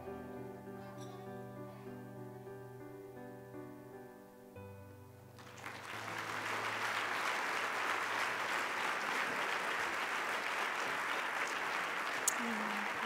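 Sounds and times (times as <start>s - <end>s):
soft instrumental music: 0.0s - 6.1s
audience applauding: 5.4s - 13.0s.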